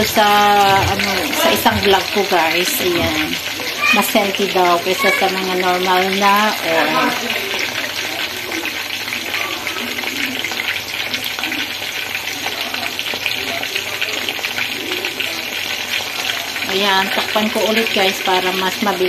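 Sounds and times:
chicken sizzling in oil: 0.0 - 19.0.

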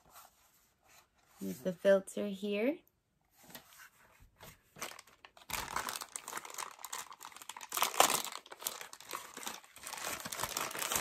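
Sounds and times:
plastic bag crinkling: 4.8 - 11.0.

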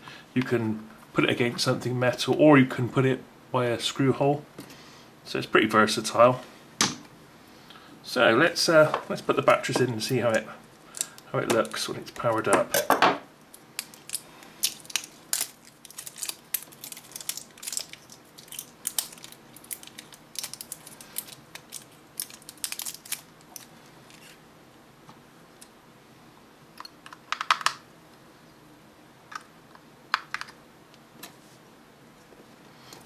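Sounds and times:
batteries and plastic clicking: 13.5 - 24.4.

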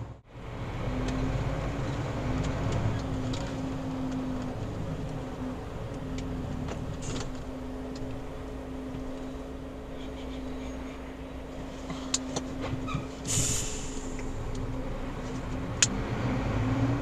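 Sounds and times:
lorry diesel engine rumbling: 0.0 - 17.0.

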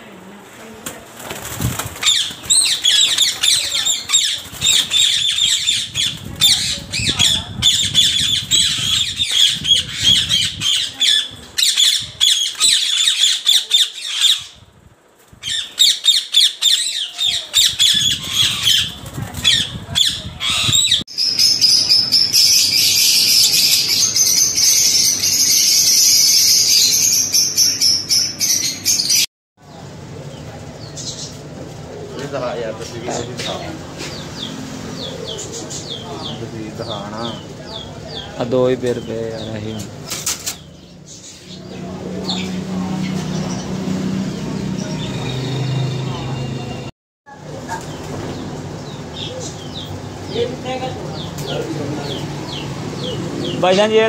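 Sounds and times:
wing flapping: 0.7 - 10.6, 17.4 - 20.8
budgerigars chattering and chirping: 2.0 - 14.6, 15.4 - 29.2, 30.8 - 31.4, 32.8 - 45.6, 47.8 - 54.0.

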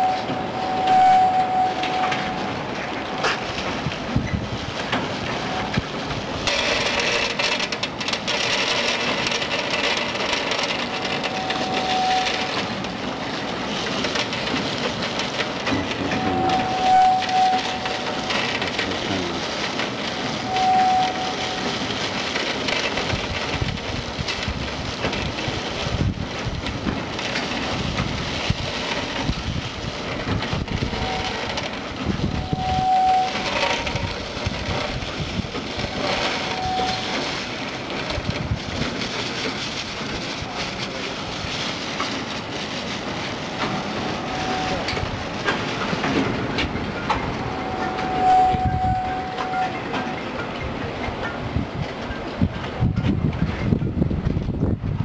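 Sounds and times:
short steady tone: 0.0 - 3.4, 15.8 - 19.3, 20.2 - 21.9, 36.0 - 37.2, 47.2 - 50.2.

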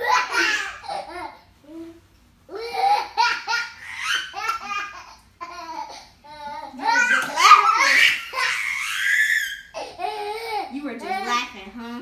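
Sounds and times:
child laughing: 0.0 - 1.4, 2.5 - 10.5.

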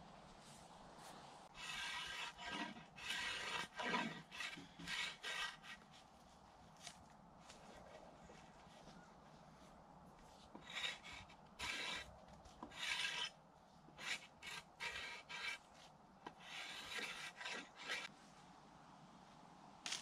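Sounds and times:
knife scraping wood: 1.5 - 6.1, 10.5 - 18.1.

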